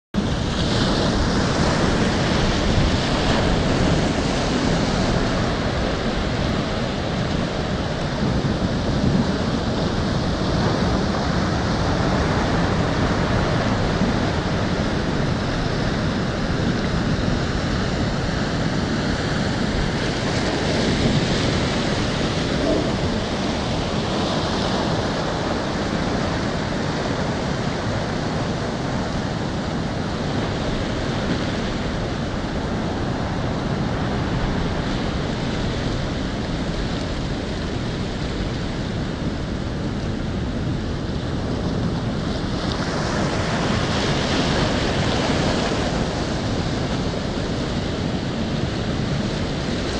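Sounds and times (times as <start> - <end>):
waves breaking over sea wall: 0.2 - 49.9.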